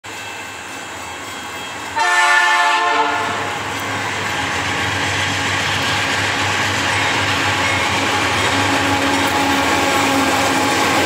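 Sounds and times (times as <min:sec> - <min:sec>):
wheels rumbling on rails: 0:00.0 - 0:11.0
locomotive air horn blast: 0:02.0 - 0:03.5.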